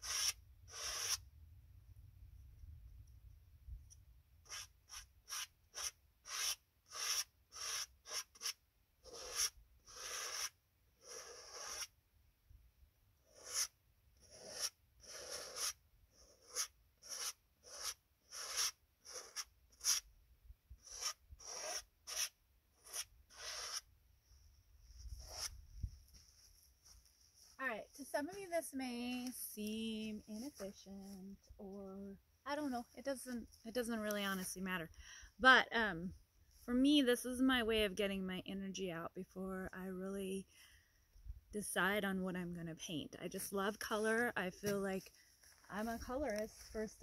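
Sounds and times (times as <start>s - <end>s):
palette knife scraping canvas: 0.0s - 1.2s, 4.5s - 11.9s, 13.3s - 20.0s, 20.8s - 23.9s, 25.0s - 25.6s.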